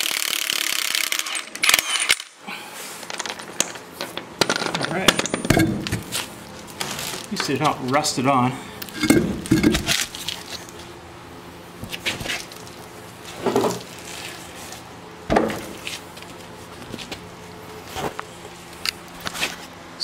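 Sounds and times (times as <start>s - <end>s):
knocks and clunks: 9.0s - 9.9s.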